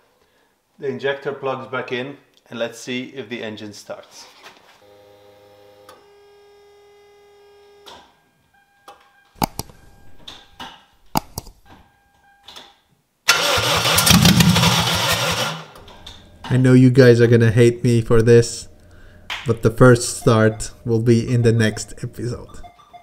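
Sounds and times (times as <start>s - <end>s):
sharp clicks: 9.4s - 9.8s, 11.1s - 11.6s
car engine cranking and firing: 13.3s - 16.1s
short steady tones: 18.9s - 23.0s.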